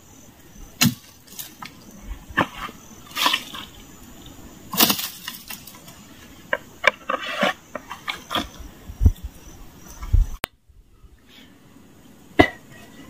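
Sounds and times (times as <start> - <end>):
leaves and twigs rustling: 0.7 - 10.4
machete chopping brush: 0.8 - 1.5, 4.7 - 5.6
wood snapping: 0.8 - 1.8, 4.7 - 5.9.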